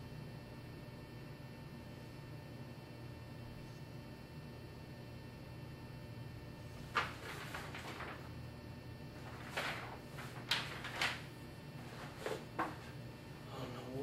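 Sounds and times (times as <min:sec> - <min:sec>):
faint room hum: 0:00.0 - 0:14.0.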